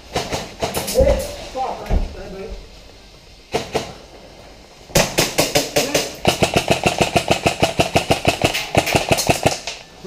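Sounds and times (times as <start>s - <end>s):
airsoft rifle firing full auto: 5.0s - 9.8s.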